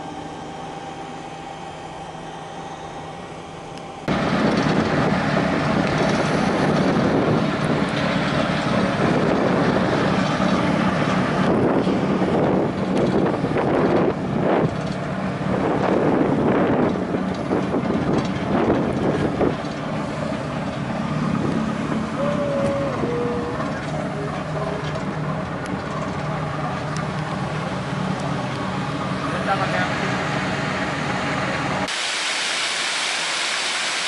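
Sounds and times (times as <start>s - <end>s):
ship engine droning: 0.0s - 34.0s
wind buffeting microphone: 4.1s - 28.7s
brief descending tone: 22.1s - 24.5s.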